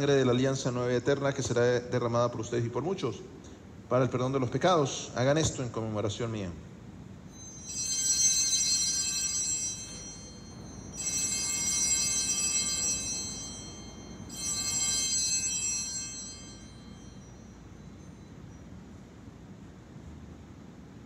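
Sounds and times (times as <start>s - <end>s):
altar bells ringing: 7.3s - 19.4s.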